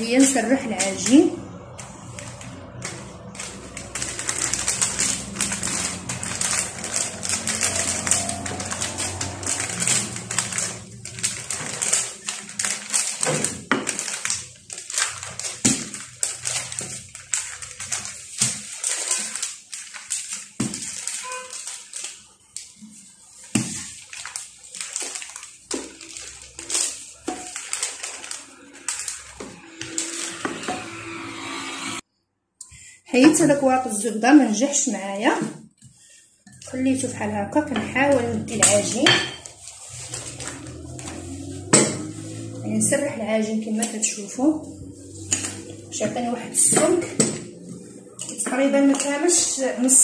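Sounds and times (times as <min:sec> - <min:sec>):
parchment paper crinkling: 0:00.0 - 0:31.0, 0:35.8 - 0:50.0
rolling pin rolling over dough: 0:36.7 - 0:50.0.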